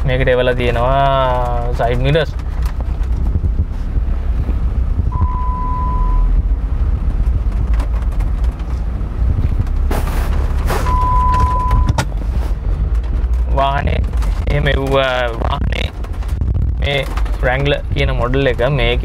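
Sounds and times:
car engine and road rumble: 0.0 - 19.0
short beeps: 5.1 - 6.3, 10.8 - 12.0.

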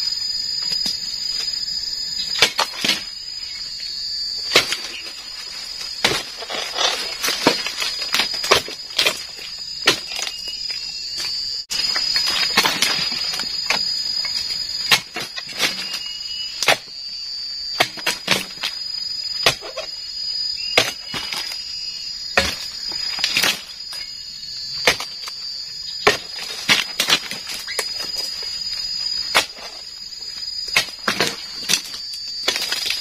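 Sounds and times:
chisel chopping palm fronds: 2.4 - 3.1, 4.5 - 5.1, 6.0 - 10.4, 24.8 - 25.2, 26.0 - 28.3.

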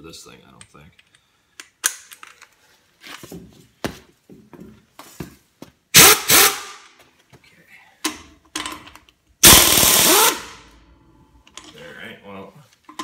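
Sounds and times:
impact wrench hammering: 9.4 - 10.6.

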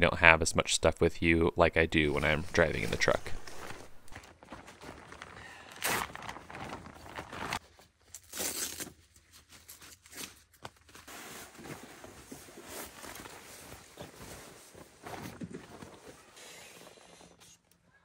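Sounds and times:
camping gear rustling: 2.1 - 17.6.

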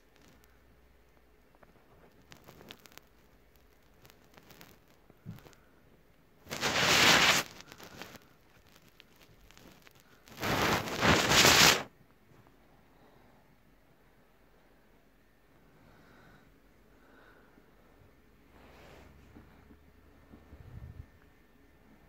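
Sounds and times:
rustling on phone microphone: 0.0 - 12.6, 18.5 - 22.0.

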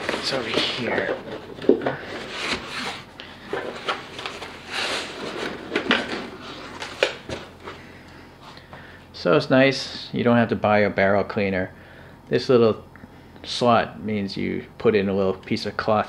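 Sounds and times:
foam rustling and scraping: 0.0 - 7.6.

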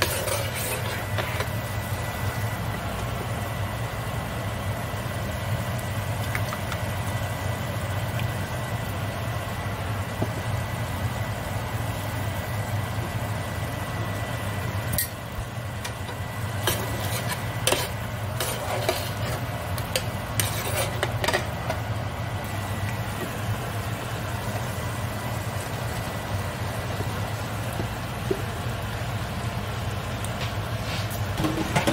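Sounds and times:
spoon scraping and clinking pan: 0.0 - 1.5, 16.7 - 21.5
sauce sizzling faintly: 0.0 - 31.4
steady low hum: 0.0 - 31.9.

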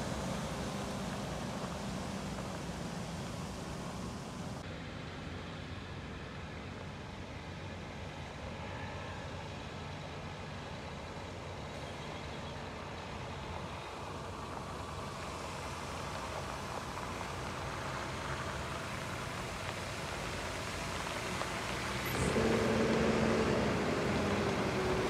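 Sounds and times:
diesel truck engine running: 0.0 - 4.6, 12.6 - 25.0
water spraying onto dirt: 0.0 - 4.6, 14.7 - 25.0.

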